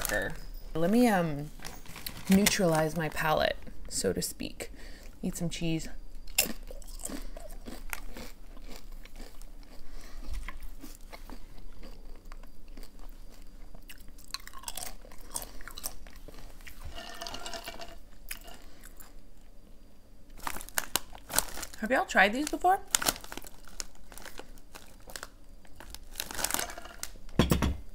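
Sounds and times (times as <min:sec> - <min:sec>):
person chewing crunchy chips: 0:06.2 - 0:19.3, 0:20.4 - 0:21.8, 0:22.4 - 0:27.2.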